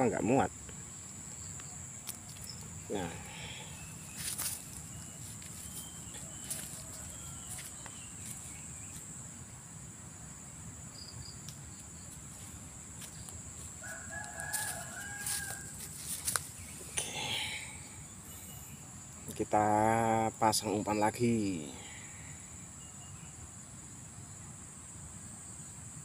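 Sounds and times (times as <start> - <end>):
high insect drone: 0.0 - 26.0
rooster crowing: 6.0 - 8.1, 13.8 - 16.4.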